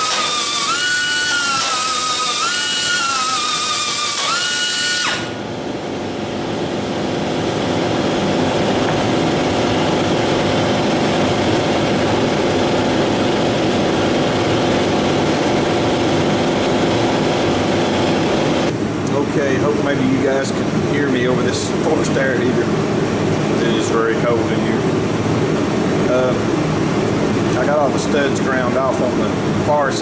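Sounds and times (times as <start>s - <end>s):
cut-off wheel grinding metal: 0.0s - 5.4s
mechanical drone with hiss: 0.0s - 30.0s.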